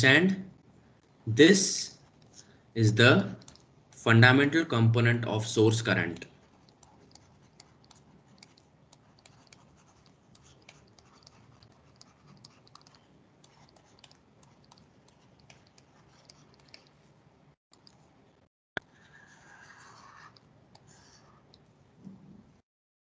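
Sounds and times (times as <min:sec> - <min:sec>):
stylus tapping and scratching on tablet: 0:02.0 - 0:02.5, 0:03.4 - 0:03.8, 0:05.8 - 0:17.2, 0:17.8 - 0:18.2, 0:18.8 - 0:21.8.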